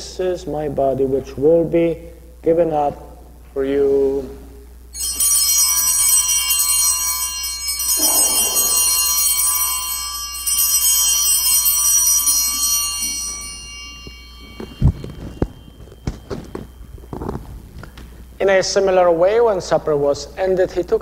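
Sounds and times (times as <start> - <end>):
altar bells ringing: 4.9 - 20.0.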